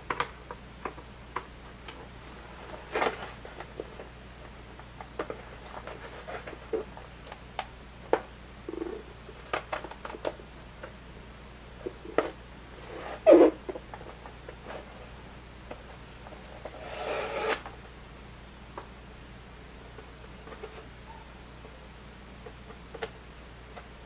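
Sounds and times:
loud scrape: 0:16.7 - 0:17.7.

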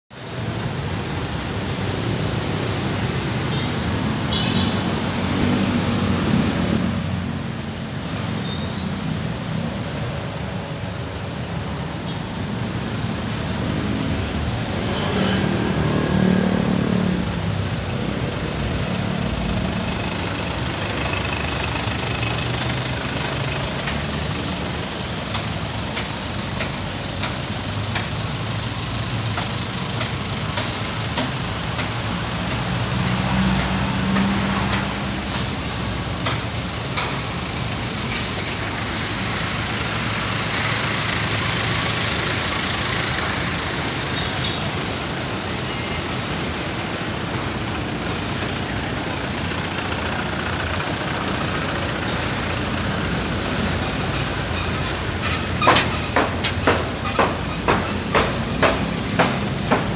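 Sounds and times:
road traffic rumble: 0:00.1 - 0:59.9
loud vehicle passing: 0:01.6 - 0:08.4, 0:12.7 - 0:24.7, 0:32.1 - 0:36.2.

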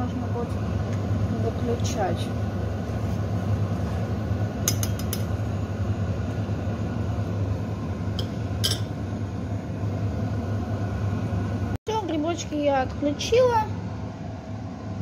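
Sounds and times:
steady low hum: 0:00.0 - 0:15.0
metal utensil clinking on cookware: 0:08.2 - 0:08.9.

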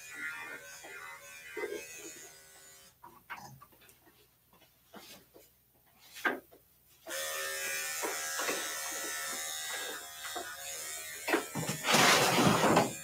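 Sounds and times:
electric clippers humming: 0:00.0 - 0:03.0, 0:07.1 - 0:13.0.

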